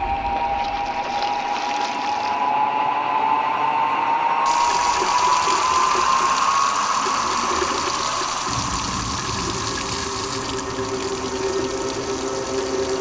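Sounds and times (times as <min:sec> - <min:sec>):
faucet water gushing into sink: 0:04.5 - 0:13.0
low rumble: 0:08.5 - 0:12.1.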